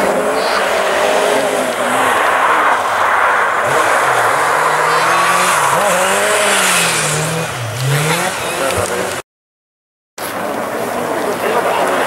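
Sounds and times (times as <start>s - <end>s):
car engine revving: 0.0s - 9.2s.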